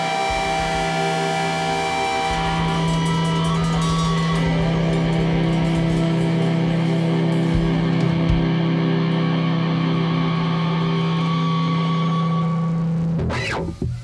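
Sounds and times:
droning low guitar note: 0.0 - 14.0
low thumps: 0.3 - 10.9.

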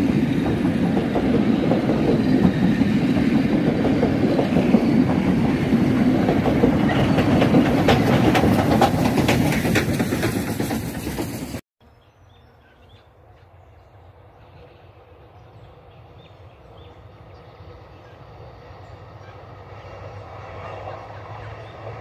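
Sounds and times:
train carriages rolling past: 0.0 - 11.6, 13.0 - 22.0
wheels clicking over rail joints: 0.0 - 11.6.

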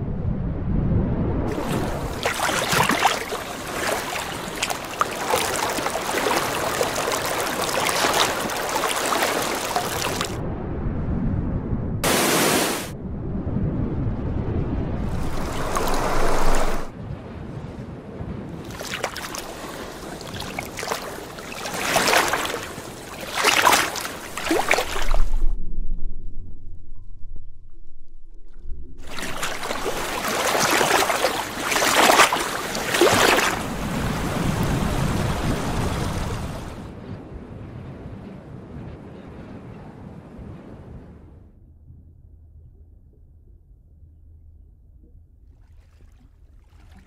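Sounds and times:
low rumble: 0.0 - 2.4, 10.1 - 12.2, 12.9 - 18.5, 24.3 - 30.2, 33.6 - 45.8
loud water splash: 1.5 - 10.4, 12.0 - 13.0, 15.0 - 16.9, 18.6 - 25.5, 29.0 - 36.9.

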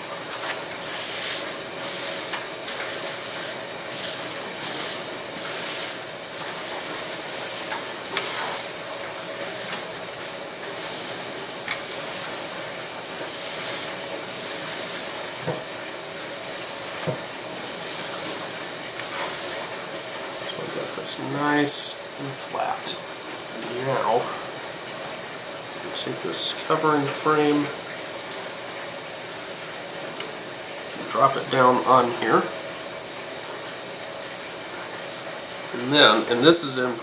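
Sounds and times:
plastic film crinkling: 0.3 - 12.6.

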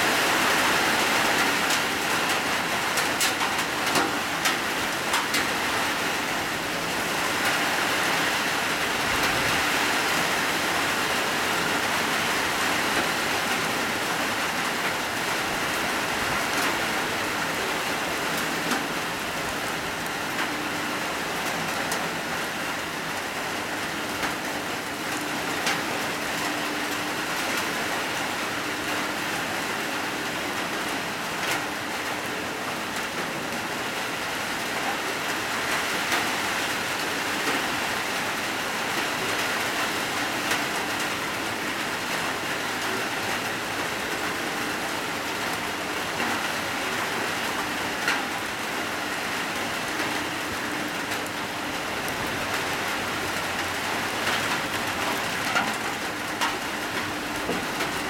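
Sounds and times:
heavy rain on pavement: 0.0 - 58.0
raindrop taps: 3.0 - 5.5, 53.6 - 58.0.

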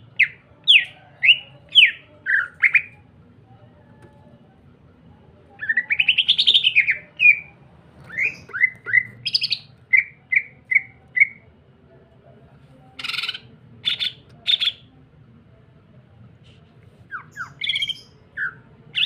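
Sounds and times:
bird singing trills and whistles: 17.1 - 19.0.

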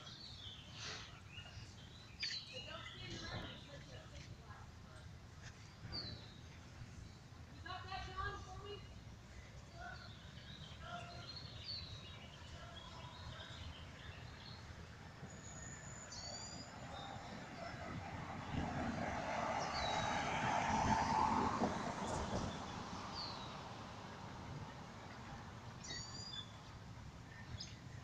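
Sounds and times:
birds chirping: 0.0 - 4.2
vehicle passing: 16.7 - 25.8.

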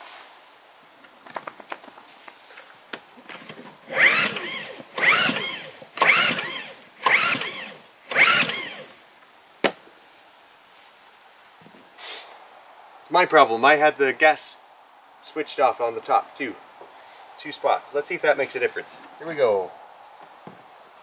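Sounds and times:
generator recoil cord pulls: 3.3 - 9.0.

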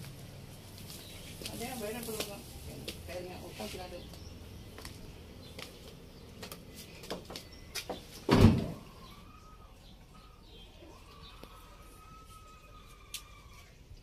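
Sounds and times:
van door thud: 8.3 - 8.8.

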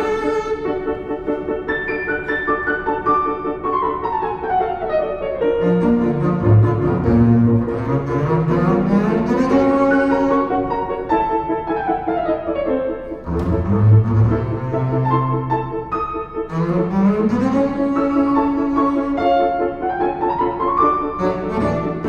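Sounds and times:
bowed double bass low notes: 5.5 - 11.1, 13.1 - 19.6, 21.0 - 22.0
piano falling runs: 5.6 - 22.0.

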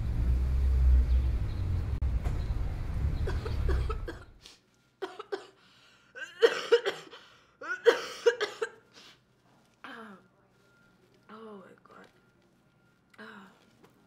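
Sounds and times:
city traffic rumble: 0.0 - 14.0
woman coughing: 3.3 - 4.4, 5.0 - 5.6, 6.2 - 8.8, 9.8 - 10.2.

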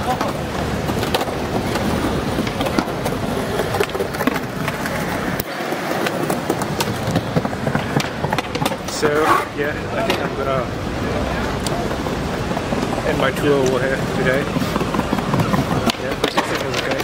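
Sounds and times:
busy outdoor hubbub: 0.0 - 17.0
skateboard clacks: 0.0 - 17.0
skateboards rolling over stone: 0.0 - 17.0.

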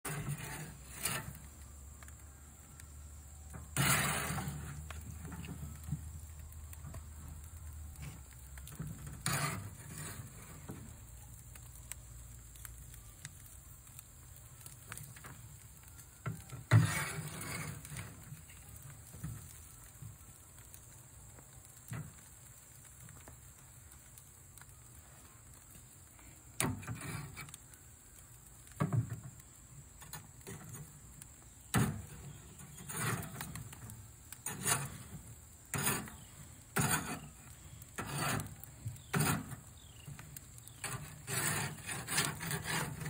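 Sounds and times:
tongs scraping wire grate: 0.0 - 1.7, 3.4 - 11.0, 16.2 - 19.5, 26.6 - 27.7, 30.0 - 43.0.

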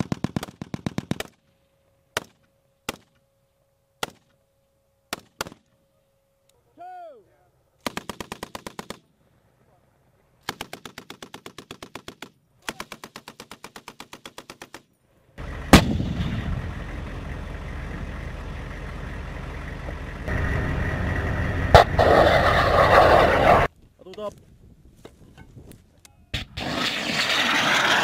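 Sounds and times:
armoured vehicle engine rumble: 15.4 - 23.7
heavy gun blast: 15.7 - 16.8.

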